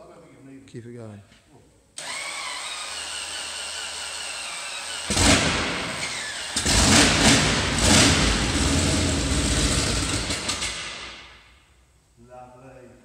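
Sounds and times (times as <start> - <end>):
starter motor whining: 2.0 - 10.9.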